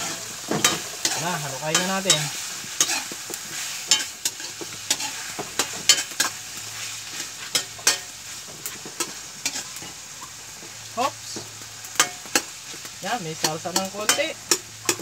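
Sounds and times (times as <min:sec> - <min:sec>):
metal spoon scraping a pan: 0:00.0 - 0:10.3, 0:11.9 - 0:12.8, 0:13.4 - 0:15.0
vegetables sizzling: 0:00.0 - 0:15.0.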